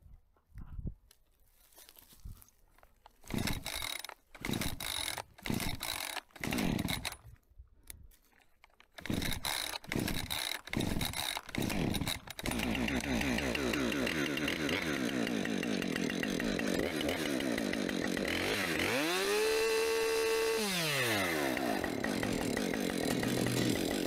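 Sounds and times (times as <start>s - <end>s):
chainsaw revving: 3.3s - 7.2s, 9.0s - 24.0s.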